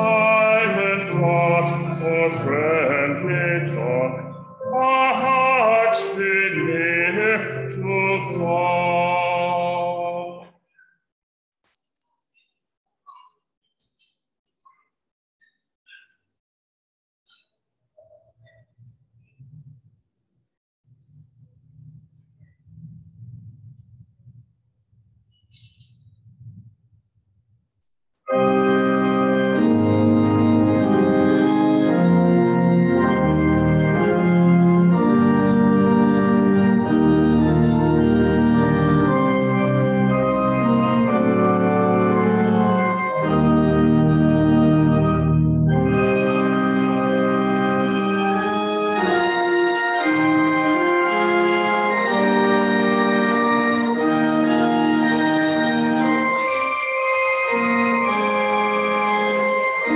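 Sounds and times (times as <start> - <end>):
church organ playing chords: 0.0 - 10.4, 28.3 - 59.9.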